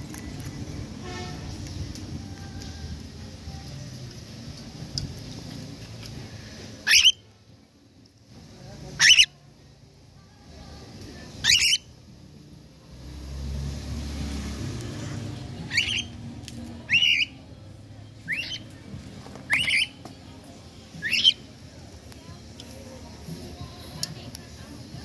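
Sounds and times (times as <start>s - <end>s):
cockatiel squawking: 6.8s - 7.2s, 9.0s - 9.3s, 11.4s - 11.9s, 15.7s - 16.1s, 16.9s - 17.4s, 18.3s - 18.6s, 19.5s - 20.0s, 21.0s - 21.4s.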